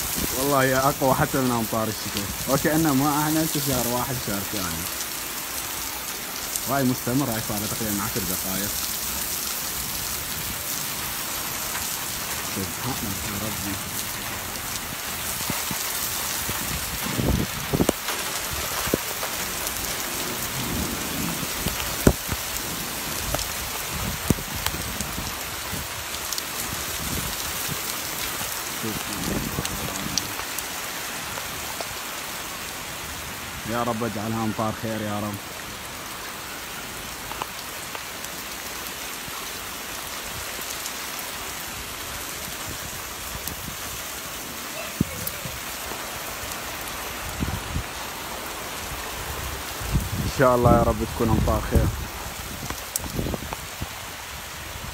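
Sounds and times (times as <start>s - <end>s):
heavy rain pouring: 0.0s - 54.9s.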